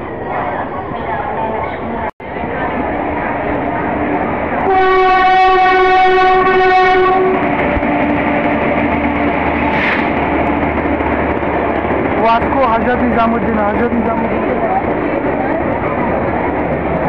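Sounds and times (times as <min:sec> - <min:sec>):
moving train rumble: 0:00.0 - 0:17.0
train horn blast: 0:04.6 - 0:07.6.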